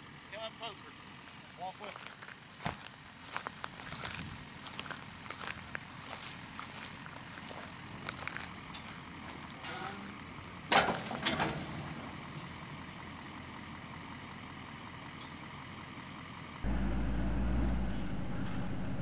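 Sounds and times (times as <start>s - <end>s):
low mechanical rumble: 0.0s - 19.0s
hay bales rustling: 1.9s - 13.4s
loud metal clanks: 10.7s - 12.0s.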